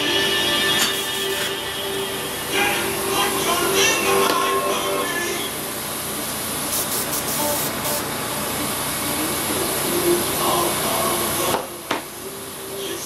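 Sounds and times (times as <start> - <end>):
airbrush air hiss: 0.9 - 1.6, 6.6 - 8.1.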